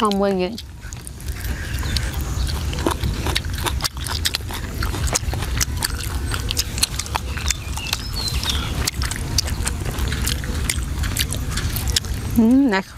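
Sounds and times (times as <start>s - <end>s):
chewing and smacking: 0.0s - 12.9s
steady low rumble: 0.0s - 12.9s.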